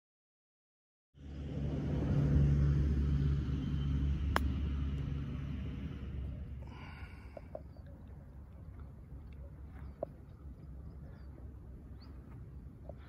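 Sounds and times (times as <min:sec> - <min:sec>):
low engine rumble: 0:01.2 - 0:13.0
golf club striking ball: 0:04.3 - 0:04.6.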